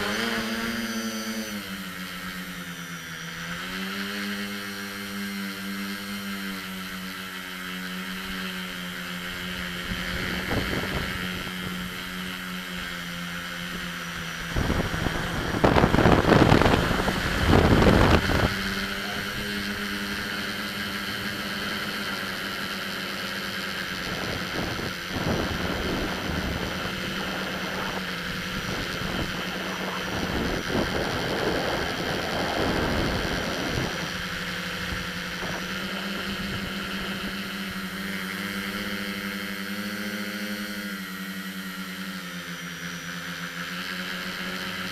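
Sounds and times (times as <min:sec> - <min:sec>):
drone propellers humming: 0:00.0 - 0:44.9
wind rushing over microphone: 0:09.7 - 0:12.1, 0:13.6 - 0:38.8.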